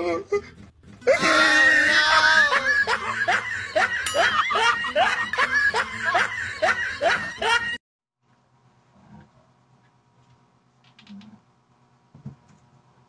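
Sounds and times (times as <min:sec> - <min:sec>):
person snickering laughter: 0:01.3 - 0:07.8.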